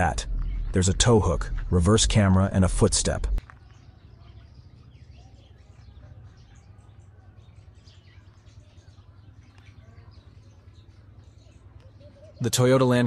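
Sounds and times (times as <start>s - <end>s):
steady low rumble: 0.0s - 3.4s
small bird chirps: 3.4s - 12.5s.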